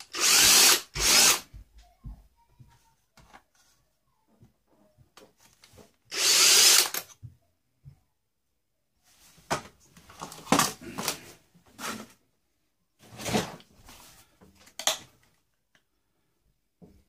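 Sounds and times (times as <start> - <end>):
plastic parts knocking and clattering: 9.5 - 11.2.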